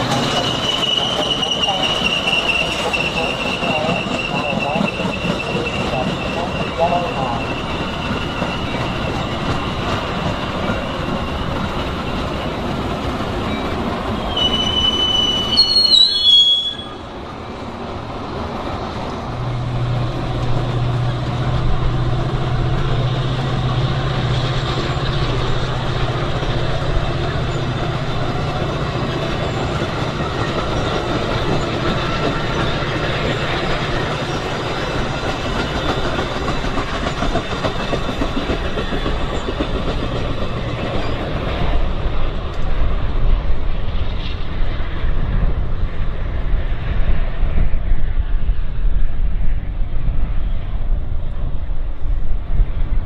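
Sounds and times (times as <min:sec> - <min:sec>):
high wheel squeal: 0:00.0 - 0:12.7, 0:13.4 - 0:17.1, 0:28.6 - 0:36.2
diesel locomotive engine drone: 0:00.0 - 0:53.0
train wheels on rails: 0:00.0 - 0:53.0.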